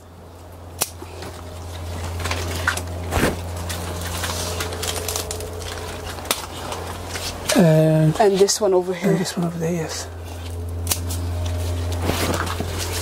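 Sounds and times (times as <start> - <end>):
steady low hum: 0.0 - 13.0
scissors snipping stem: 10.8 - 11.2.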